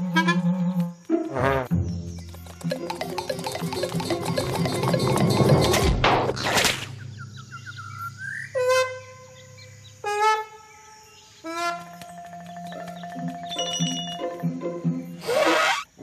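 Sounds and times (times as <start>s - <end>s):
rising chirps: 1.9s - 5.9s, 12.2s - 16.0s
cartoon swish: 15.2s - 15.9s.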